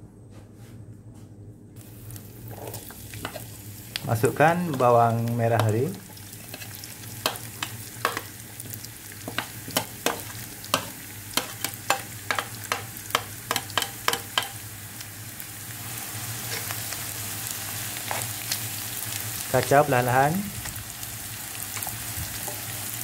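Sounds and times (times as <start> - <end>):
onions sizzling in hot oil: 1.8 - 23.0.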